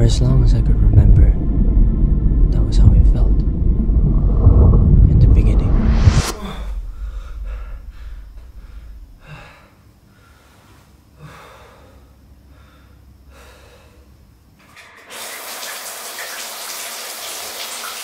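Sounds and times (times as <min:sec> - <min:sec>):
low drone: 0:00.0 - 0:09.7
man breathing heavily: 0:06.4 - 0:14.3
shower running water hiss: 0:14.8 - 0:18.0.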